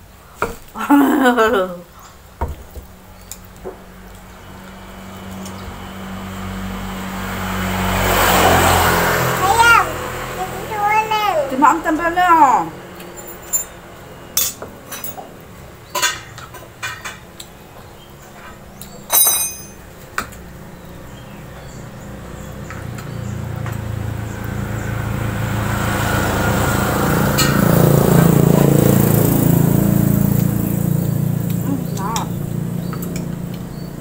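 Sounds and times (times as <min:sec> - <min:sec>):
vehicle engine passing: 0:03.7 - 0:15.9, 0:19.6 - 0:34.0
metal spoon clinking on glass bowl: 0:19.1 - 0:19.8.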